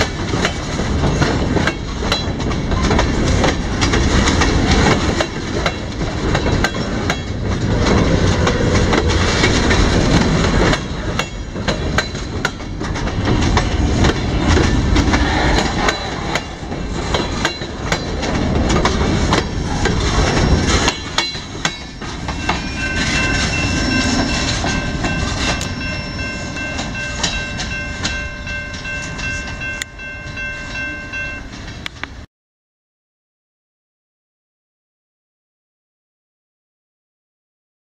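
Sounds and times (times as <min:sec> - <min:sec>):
freight train wheels rumbling: 0:00.0 - 0:32.3
steady high ringing tone: 0:20.3 - 0:31.8.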